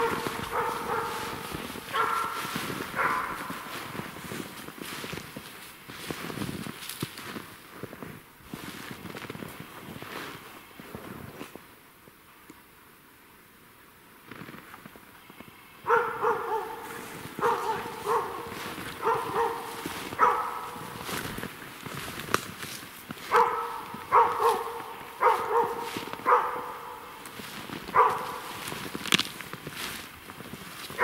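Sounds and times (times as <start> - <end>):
dog barking: 0.0 - 4.2, 15.8 - 21.4, 23.2 - 28.9.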